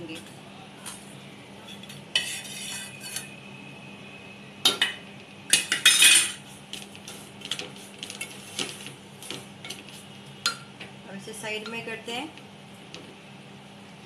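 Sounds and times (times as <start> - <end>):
wooden spatula stirring in pot: 6.6 - 10.2.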